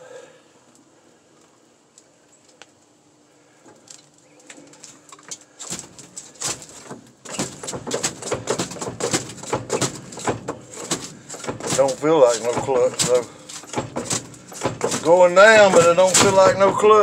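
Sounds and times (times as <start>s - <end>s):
clutch pedal creaking and squeaking: 6.5s - 17.0s.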